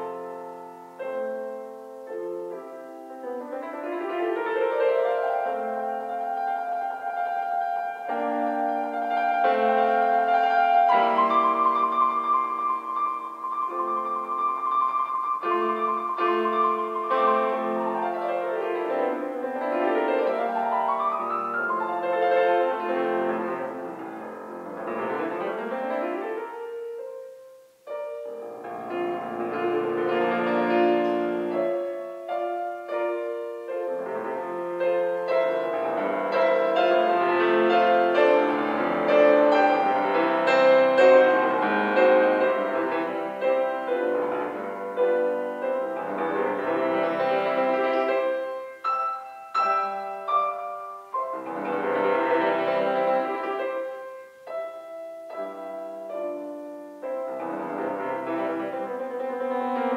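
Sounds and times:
solo grand piano: 0.0 - 59.9.

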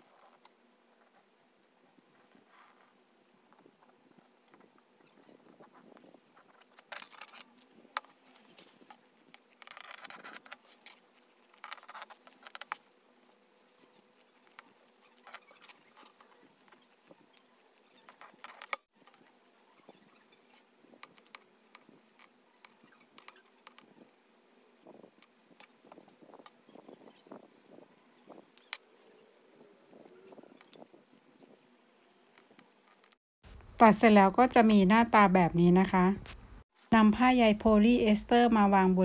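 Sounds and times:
scissors snipping: 6.9 - 12.9, 13.6 - 19.5.

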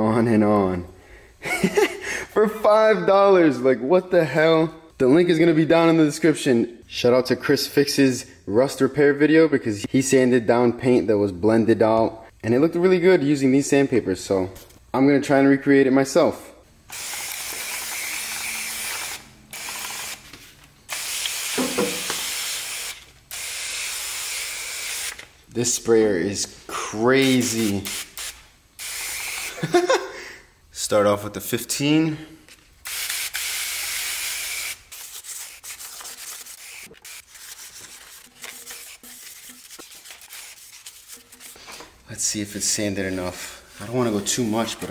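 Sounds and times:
pump sprayer hissing: 20.9 - 25.2
sandpaper rubbing on metal: 33.6 - 41.7.

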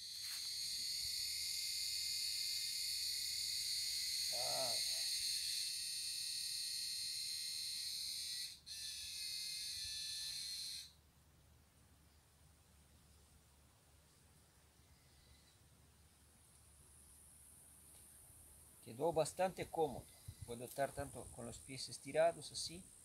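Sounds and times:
insect buzzing: 0.0 - 11.0, 14.8 - 18.8, 19.7 - 23.0.

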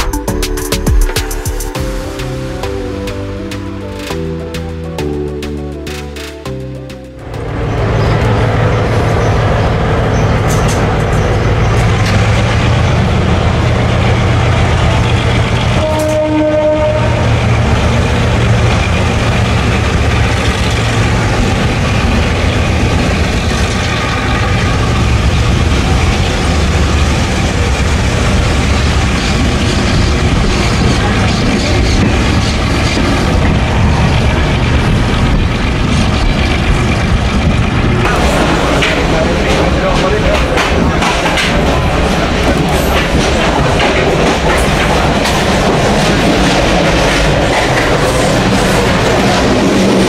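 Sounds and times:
train rumbling on rails: 0.0 - 50.0.

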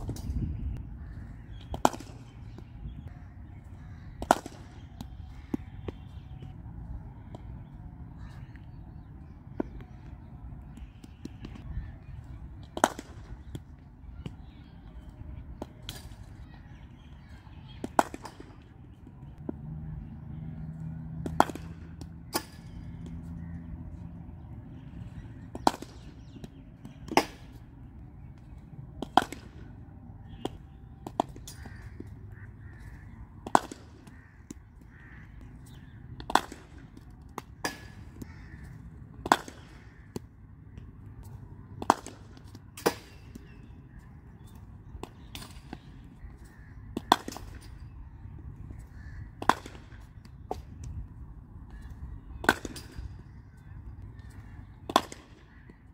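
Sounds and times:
cricket ball struck by bat: 33.4 - 34.6.

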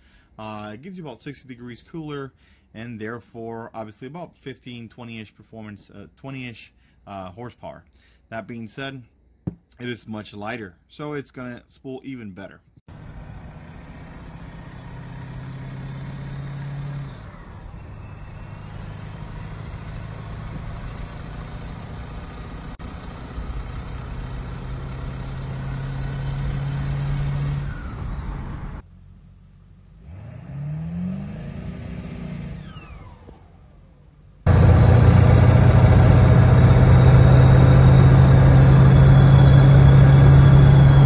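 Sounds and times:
diesel engine drone: 12.9 - 41.0.

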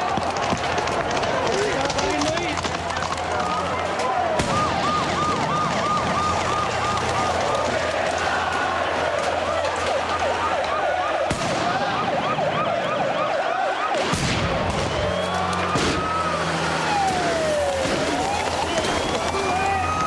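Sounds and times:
police sirens: 0.0 - 20.0
sharp bangs: 4.2 - 12.4, 13.5 - 20.0.

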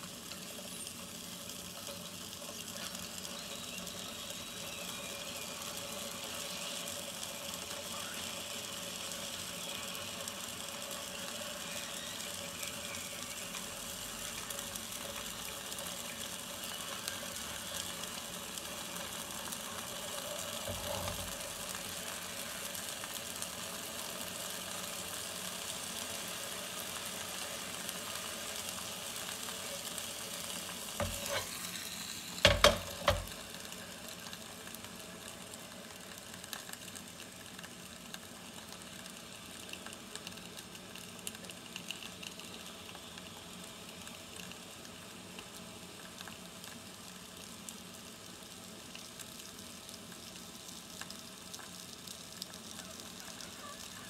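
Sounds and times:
food sizzling in sandwich maker: 0.0 - 54.0
metal clanks on stove grate: 31.0 - 31.6, 32.5 - 33.4.

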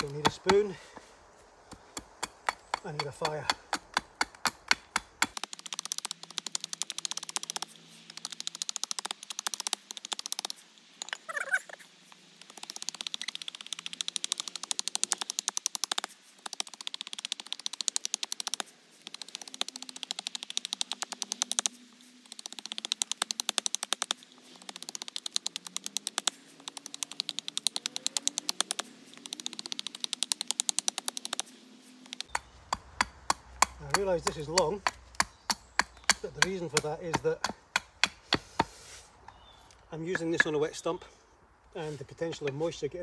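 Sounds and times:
knife chopping wood: 0.0 - 10.6, 32.2 - 38.8.

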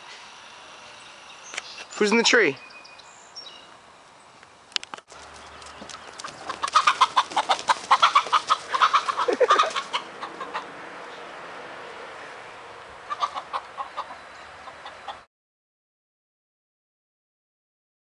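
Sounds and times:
chicken squawking and clucking: 6.2 - 10.8, 13.1 - 15.2.

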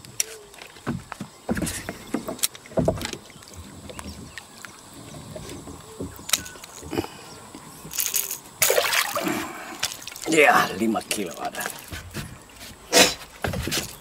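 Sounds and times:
fish splashing at water surface: 8.1 - 10.4.

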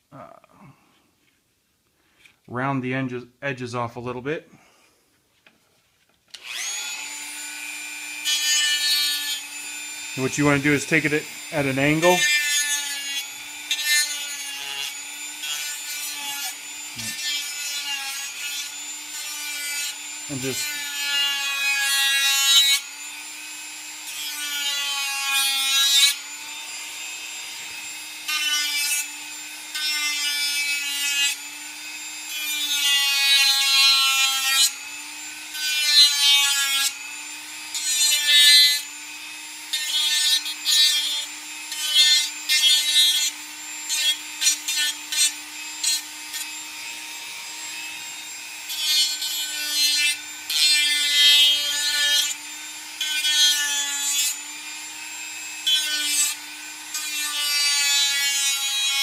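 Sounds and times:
rotary tool motor whine: 6.3 - 59.0
sanding attachment rasping plastic: 6.4 - 23.0, 23.9 - 59.0.

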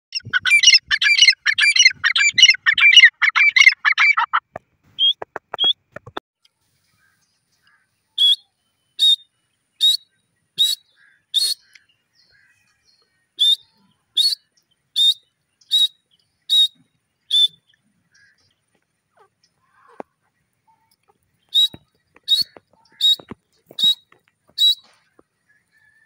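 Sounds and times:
francolin whistled calls: 0.1 - 4.4, 8.2 - 11.9, 13.4 - 17.7, 21.5 - 24.9.

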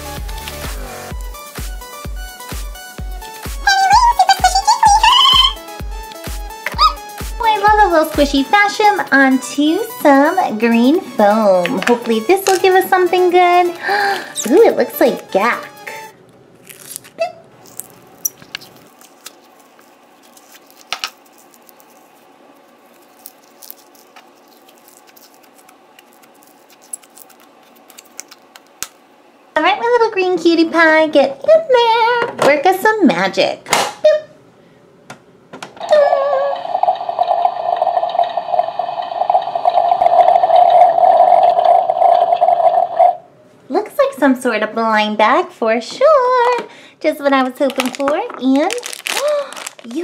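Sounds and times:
foam putty crackling and squishing: 16.6 - 29.0, 47.5 - 50.0
toy coffee maker bubbling: 35.8 - 43.2.

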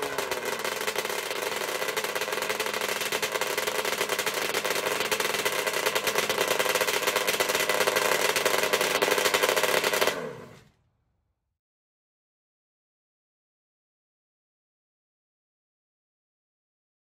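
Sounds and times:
two-stroke engine running: 0.0 - 10.6.

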